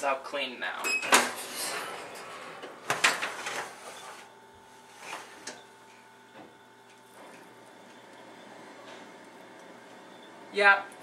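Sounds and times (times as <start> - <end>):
oven rack sliding on runners: 1.3 - 5.6.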